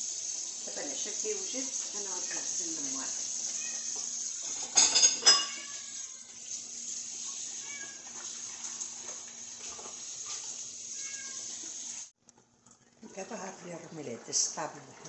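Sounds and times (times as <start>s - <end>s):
tap water running into sink: 0.0s - 12.1s
dishware clinking: 4.4s - 5.8s.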